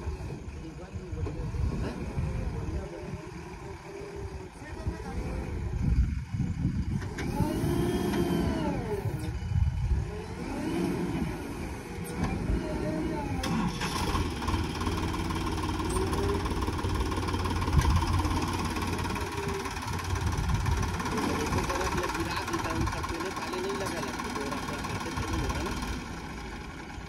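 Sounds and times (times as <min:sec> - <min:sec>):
diesel engine revving: 0:00.0 - 0:27.0.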